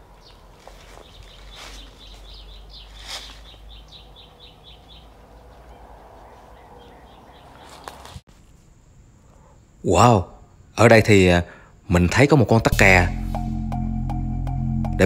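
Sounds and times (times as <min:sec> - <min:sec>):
sharp bird calls: 0:00.0 - 0:08.2.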